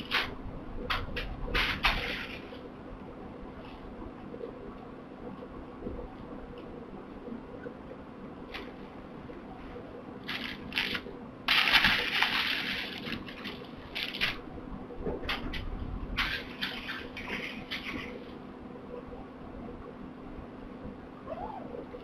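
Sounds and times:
low steady hum: 0.0s - 22.0s
kittens rustling and crinkling: 9.6s - 14.4s.

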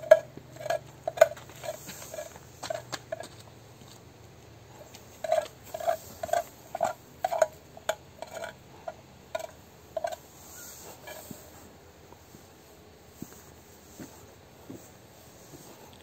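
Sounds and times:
metal utensil scraping a pan: 5.2s - 11.4s.

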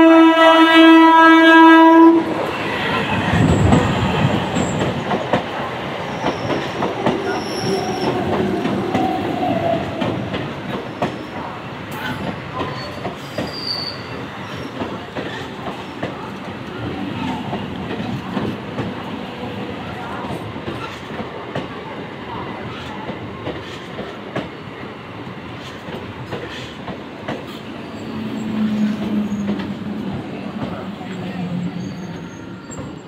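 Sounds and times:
high wheel squeal: 6.1s - 8.3s, 12.6s - 14.8s, 31.6s - 33.0s.

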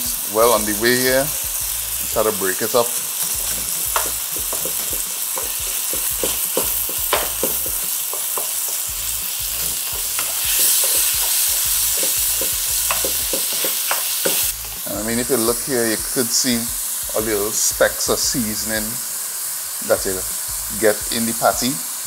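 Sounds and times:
meat sizzling in frying pan: 0.0s - 22.0s
wooden spoon scraping pan: 2.2s - 14.8s.

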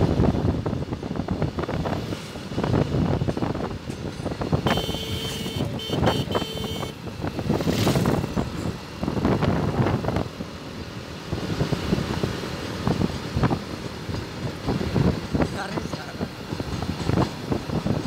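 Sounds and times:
vehicle rumble and wind noise: 0.0s - 18.0s.

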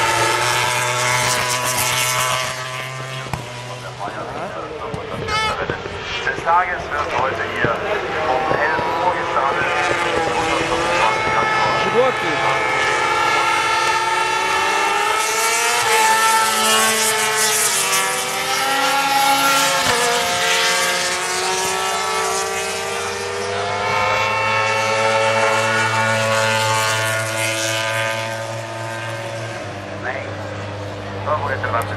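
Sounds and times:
racing motorcycle engines revving: 0.0s - 31.9s.

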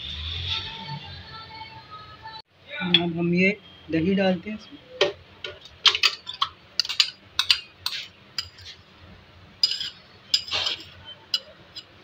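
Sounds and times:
spoon clinking against glass: 9.6s - 12.0s.

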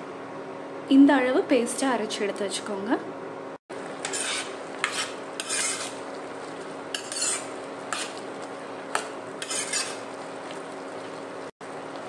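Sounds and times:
metal ladle scraping a pot: 4.0s - 6.0s, 6.9s - 8.2s, 9.0s - 10.1s.

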